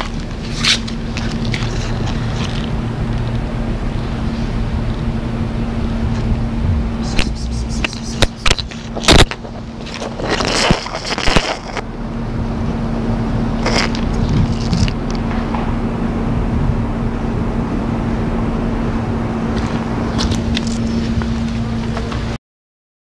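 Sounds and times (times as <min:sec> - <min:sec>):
phone handling among dry leaves: 0:00.0 - 0:03.4, 0:07.2 - 0:11.9, 0:13.6 - 0:15.3
steady low hum: 0:00.0 - 0:22.4.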